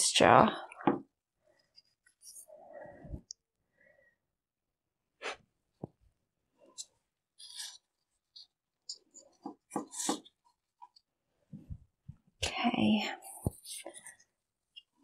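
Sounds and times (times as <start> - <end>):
gloved hands rustling and scraping: 5.2 - 12.3.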